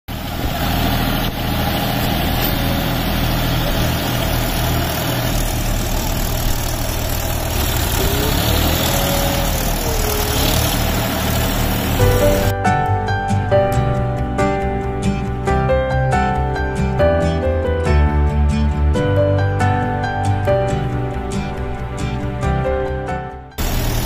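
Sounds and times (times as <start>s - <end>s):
tractor engine idling: 0.1s - 12.6s, 23.6s - 24.0s
faint rising and falling tone: 2.4s - 12.5s.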